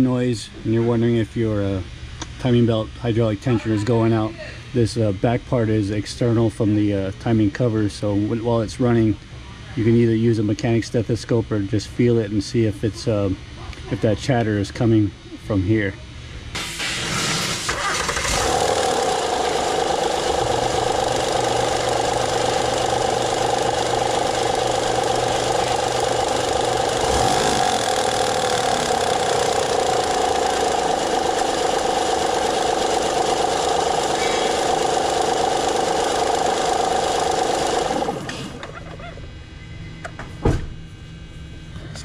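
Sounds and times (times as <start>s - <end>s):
car engine idling: 17.6s - 38.8s
engine ticking rattle: 17.9s - 38.8s.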